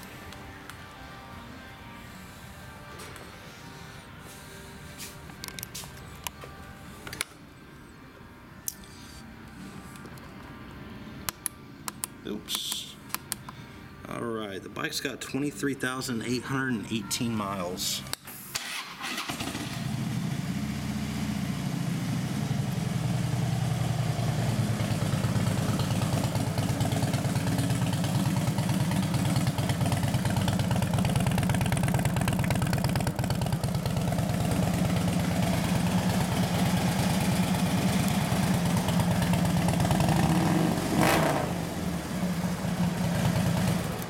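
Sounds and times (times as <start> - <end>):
motorcycle engine idling: 19.5 - 44.0.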